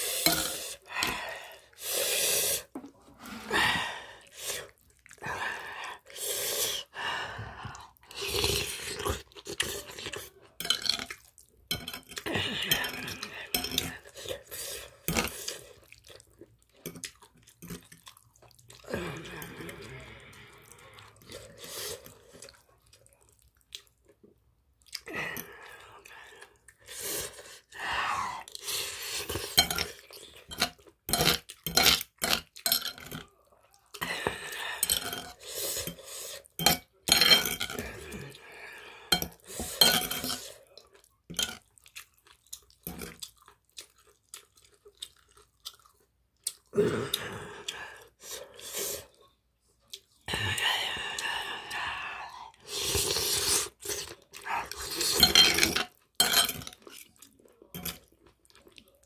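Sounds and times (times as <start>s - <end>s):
chewing: 7.7s - 27.4s, 40.4s - 48.1s, 52.5s - 59.0s.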